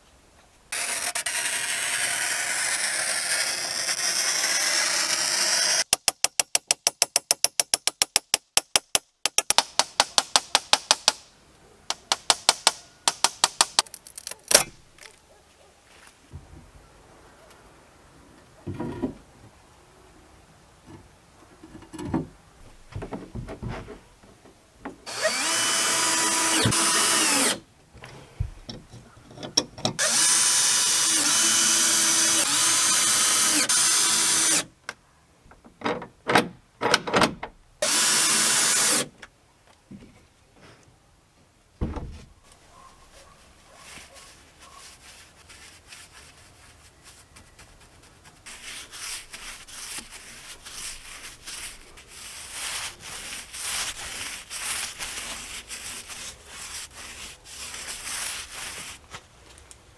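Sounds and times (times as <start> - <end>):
cordless drill driving screws: 0.7 - 5.8, 25.1 - 27.6, 30.0 - 34.7, 37.8 - 39.1.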